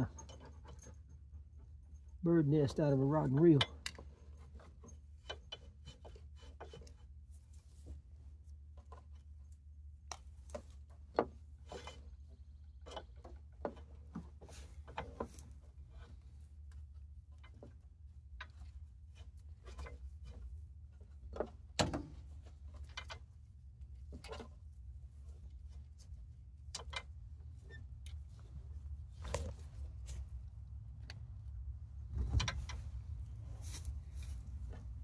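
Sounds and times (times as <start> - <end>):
rope rustling and rubbing: 28.2 - 30.6, 32.1 - 35.0.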